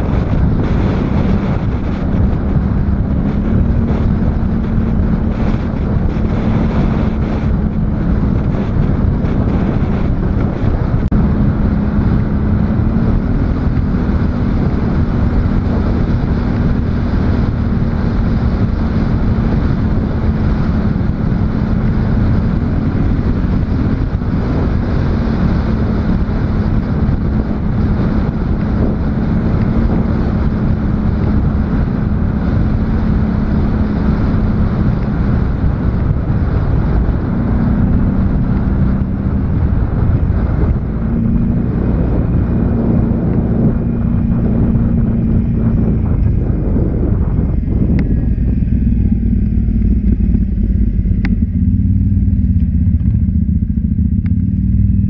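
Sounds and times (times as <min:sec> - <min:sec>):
atv engine running: 0:00.0 - 0:55.0
wind buffeting microphone: 0:00.0 - 0:55.0.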